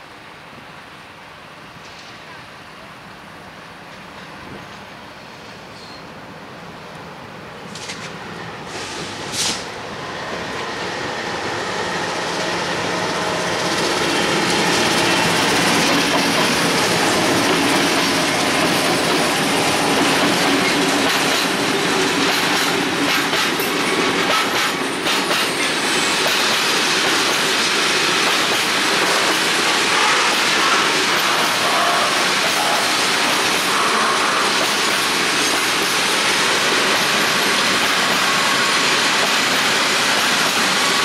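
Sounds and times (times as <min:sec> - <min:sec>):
freight train rolling past: 0:00.0 - 0:41.0
diesel locomotive passing: 0:02.3 - 0:41.0
wheels clacking over rail joints: 0:13.5 - 0:31.8.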